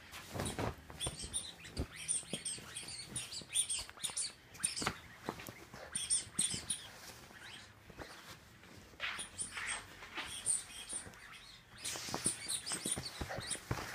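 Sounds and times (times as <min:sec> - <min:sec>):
fabric rustling and scuffling: 0:00.0 - 0:13.9.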